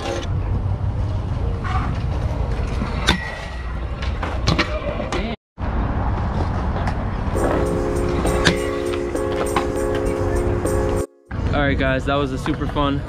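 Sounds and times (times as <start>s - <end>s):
music: 7.4s - 11.5s.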